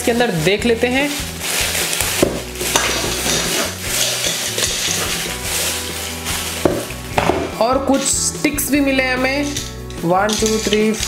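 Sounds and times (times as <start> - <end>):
plastic bag crinkling: 0.0 - 8.2.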